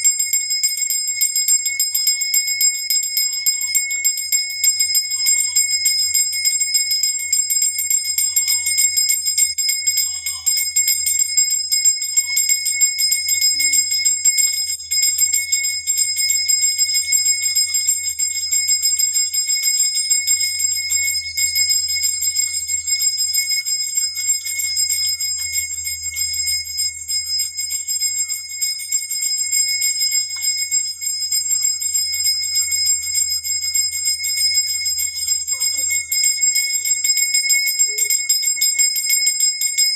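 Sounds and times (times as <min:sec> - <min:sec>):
brass bell ringing rapidly: 0:00.0 - 0:39.9.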